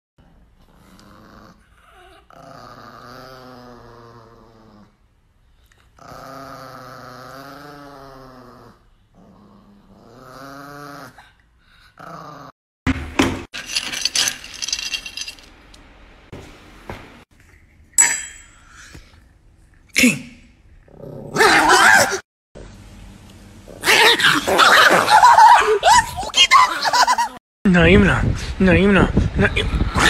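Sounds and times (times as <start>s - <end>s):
dog growling: 0.2s - 5.0s, 6.0s - 12.5s, 20.8s - 21.9s.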